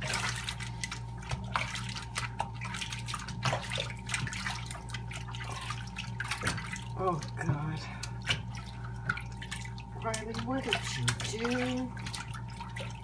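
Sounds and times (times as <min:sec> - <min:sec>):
steady low hum: 0:00.0 - 0:13.0
tap water running: 0:00.0 - 0:13.0
water splashing and dripping: 0:00.0 - 0:13.0.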